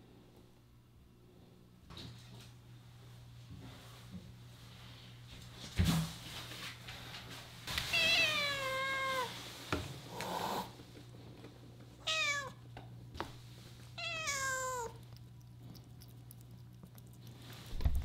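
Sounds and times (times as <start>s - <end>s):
cat meowing: 7.9s - 9.3s, 12.0s - 12.6s, 14.0s - 15.0s.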